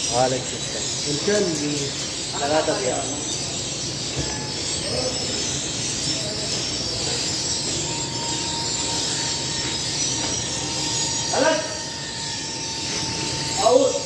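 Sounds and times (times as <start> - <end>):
faint steady whine: 0.0 - 14.0
oven and extractor hood running: 0.0 - 14.0.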